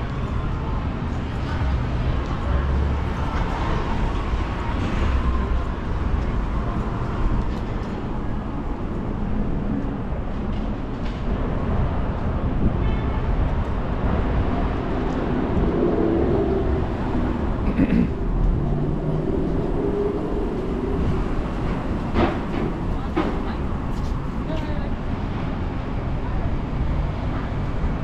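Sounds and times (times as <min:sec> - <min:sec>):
low rumble of passing vehicles: 0:00.0 - 0:28.0.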